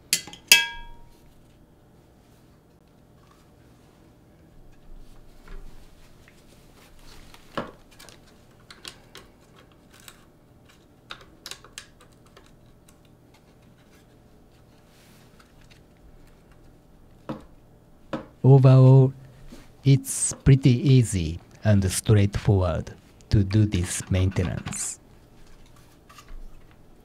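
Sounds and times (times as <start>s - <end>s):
clicks and taps of small parts: 8.6s - 13.2s.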